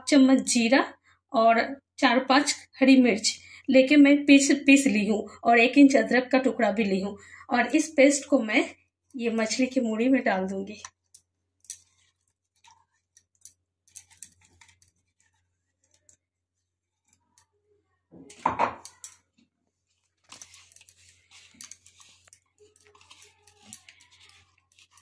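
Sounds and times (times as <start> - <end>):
paste scraping from jar: 11.8 - 16.1, 20.4 - 25.0.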